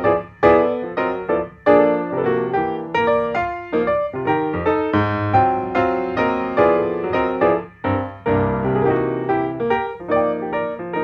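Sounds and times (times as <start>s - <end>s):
keyboard chords: 0.0s - 11.0s.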